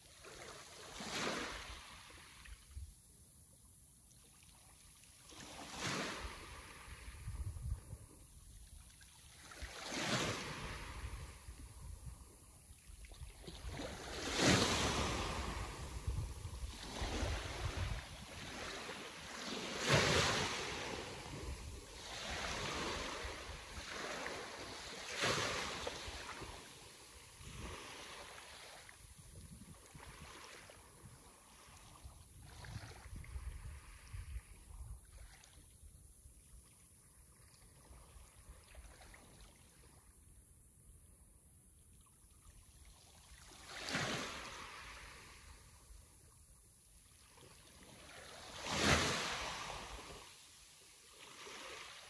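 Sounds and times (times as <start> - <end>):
sea waves breaking on shore: 0.1 - 2.6, 5.1 - 7.4, 9.0 - 12.5, 13.3 - 35.5, 43.0 - 45.9, 47.1 - 52.0.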